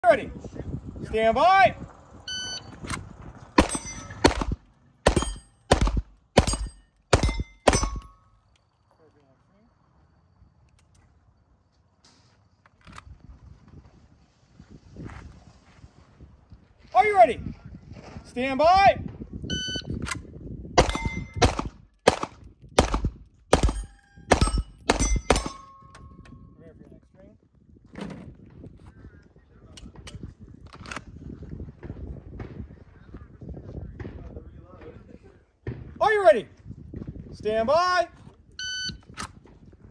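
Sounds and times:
shot timer beep: 2.3s - 2.7s, 19.5s - 19.9s, 38.6s - 39.0s
handgun shots: 3.6s - 8.2s, 20.8s - 25.8s
steel targets clanging: 3.6s - 8.4s, 20.8s - 21.5s, 23.6s - 26.2s.

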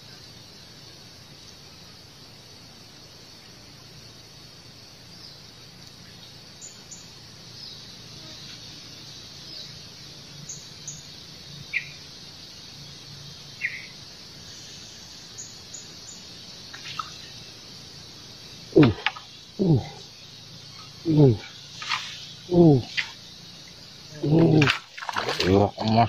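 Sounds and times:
faint high hiss: 0.0s - 26.0s
bird chirps: 10.4s - 12.0s, 13.5s - 17.5s.

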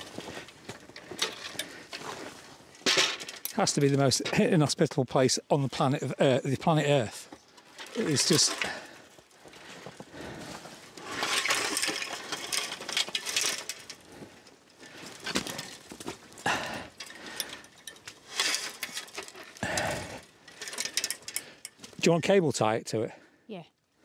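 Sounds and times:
wire fence being handled: 0.0s - 3.6s, 7.5s - 9.0s, 10.9s - 22.0s.

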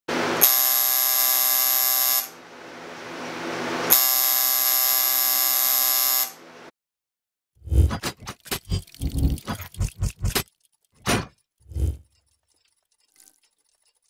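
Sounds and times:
tattoo machine buzzing: 0.4s - 2.4s, 3.9s - 6.4s.

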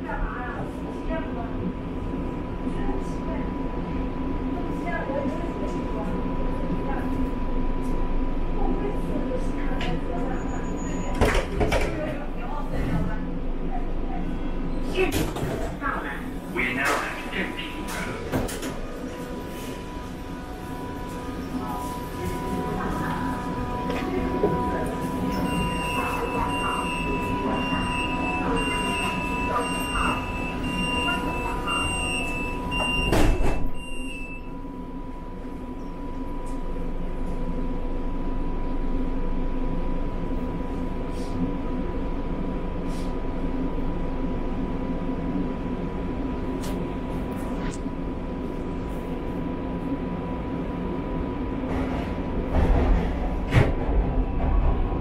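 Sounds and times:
constant train whine: 0.0s - 55.0s
train rumble: 0.0s - 55.0s
door-closing warning beep: 10.4s - 11.6s, 23.8s - 34.6s.

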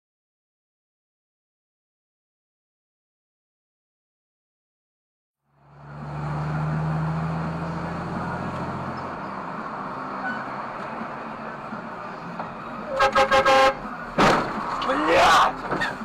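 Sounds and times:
low engine hum: 5.5s - 14.9s
tyre and road noise: 5.5s - 16.0s
car horn honking: 12.9s - 14.0s.

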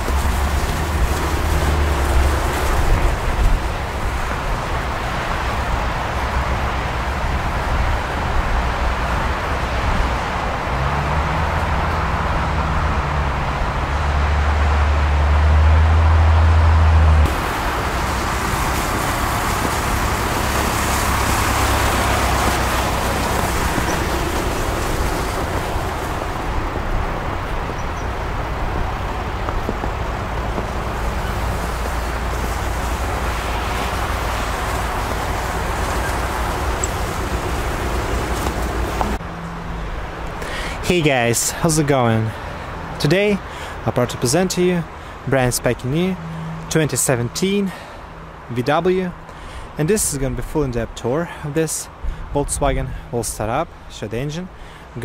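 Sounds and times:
diesel van engine driving slowly: 0.0s - 55.0s.

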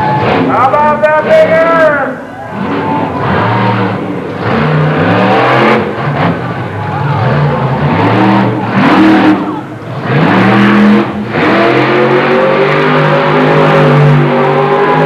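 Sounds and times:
monster truck engines revving: 0.0s - 15.0s.

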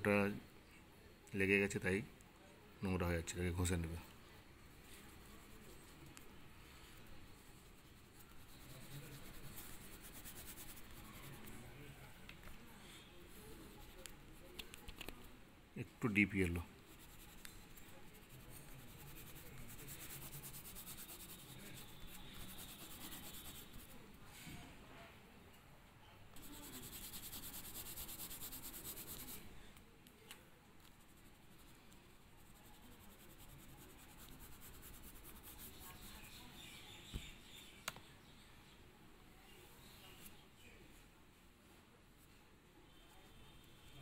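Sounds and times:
crayon scratching on paper: 7.6s - 11.6s, 16.8s - 24.0s, 26.4s - 29.5s, 30.8s - 36.4s.

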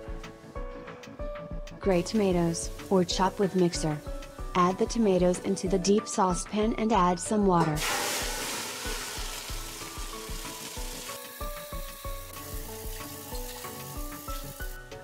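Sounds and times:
background music with beat: 0.0s - 15.0s
tomato pulp pouring splash: 7.8s - 14.8s.

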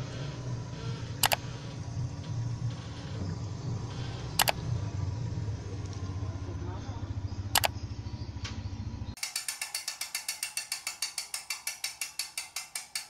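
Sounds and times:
low rumbling hum: 0.0s - 9.2s
rapid mechanical ratchet ticks: 0.1s - 3.2s, 3.8s - 4.7s, 7.5s - 7.8s, 9.2s - 13.0s
sharp double click: 1.2s - 1.4s, 4.4s - 4.6s, 7.5s - 7.8s.

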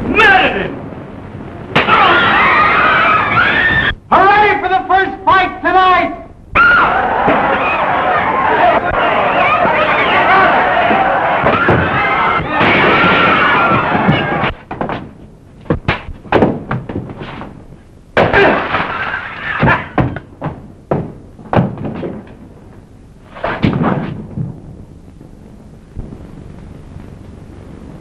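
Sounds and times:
steady low rushing noise: 0.0s - 12.6s
people shouting: 1.8s - 4.0s, 6.6s - 14.6s
thuds and knocks: 10.8s - 17.6s, 19.6s - 22.4s, 23.4s - 24.6s.

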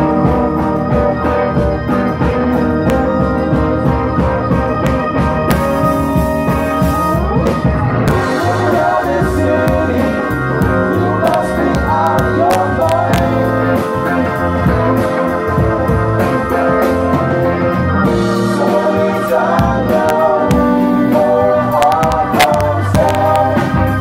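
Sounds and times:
drums: 0.0s - 24.0s
keyboard chords: 0.0s - 24.0s
live rock band playing: 0.0s - 24.0s
person singing: 0.0s - 24.0s.

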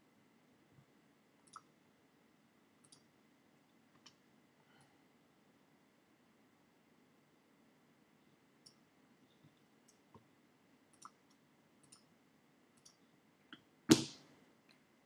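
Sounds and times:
computer mouse clicking: 2.8s - 3.1s, 10.9s - 12.1s, 12.8s - 13.0s.

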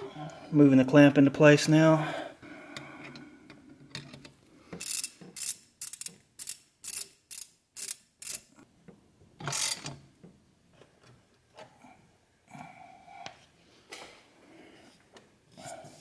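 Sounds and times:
socket ratchet clicking: 4.8s - 8.5s.

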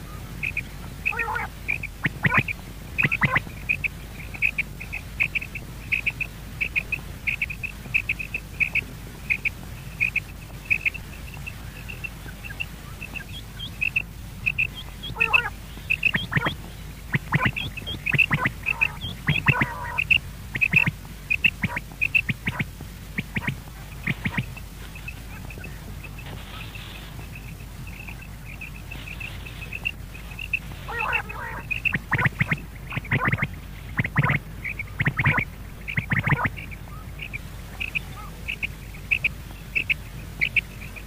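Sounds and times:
quail calling: 0.0s - 41.0s
scratchy rustling in sand: 10.0s - 35.4s.

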